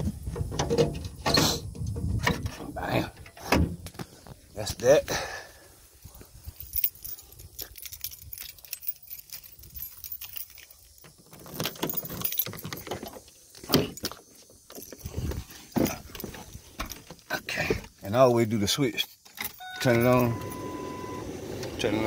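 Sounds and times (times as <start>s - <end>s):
keys jangling: 6.3s - 17.2s, 19.2s - 20.6s.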